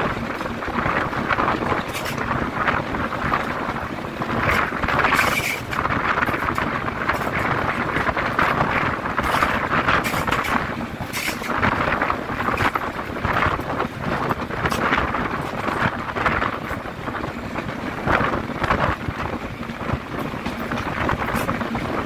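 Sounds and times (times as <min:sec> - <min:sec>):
train running noise: 0:00.0 - 0:22.0
wind buffeting microphone: 0:00.0 - 0:22.0.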